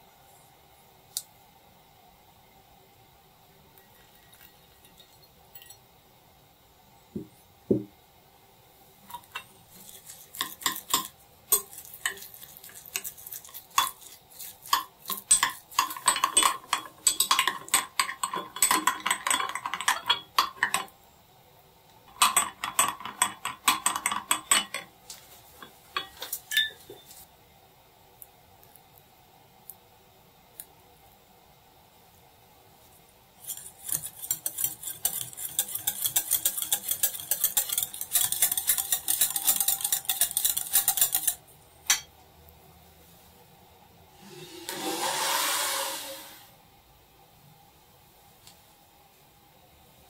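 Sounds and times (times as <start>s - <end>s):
spoon clinking in bowl: 3.8s - 5.8s, 9.1s - 20.9s, 22.1s - 24.9s, 25.6s - 27.1s, 33.5s - 42.1s.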